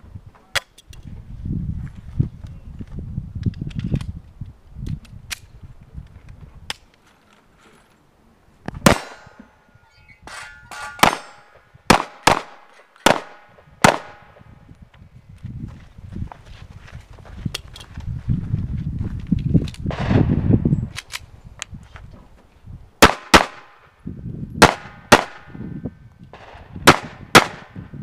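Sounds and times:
handgun shots: 8.8 - 9.5, 10.9 - 14.3.

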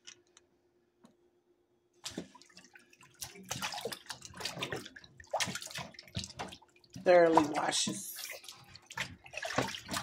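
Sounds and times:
hand rubbing meat in water: 2.0 - 10.0
water splashing in a metal sink: 2.0 - 10.0.

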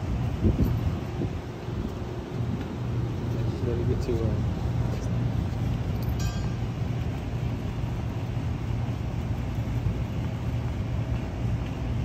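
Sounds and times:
air conditioning unit droning: 0.0 - 12.0
high chirp: 6.1 - 6.8.

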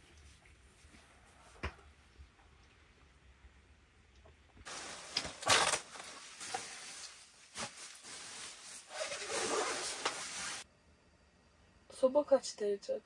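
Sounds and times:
rustling and handling noise: 4.6 - 10.7.

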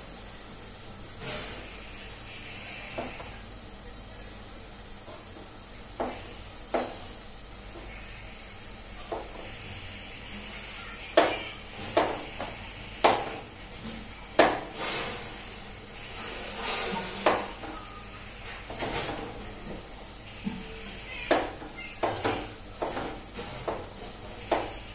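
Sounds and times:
onions sizzling in oil: 0.0 - 24.9
knife chopping on board: 6.0 - 7.0, 11.2 - 13.4, 14.4 - 14.7, 17.2 - 17.5, 21.3 - 23.9, 24.5 - 24.8.

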